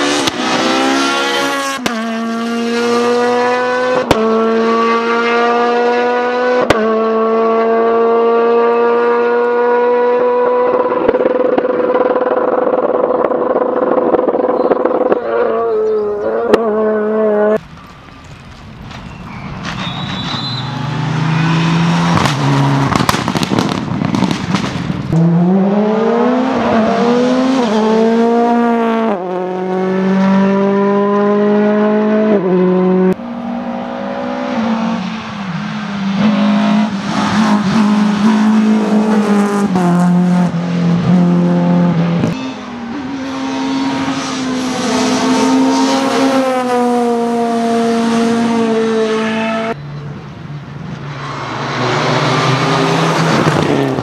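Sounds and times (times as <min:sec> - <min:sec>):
rally car engines revving: 0:00.0 - 0:17.6, 0:19.6 - 0:54.0
sharp cracks and bangs: 0:22.2 - 0:25.2.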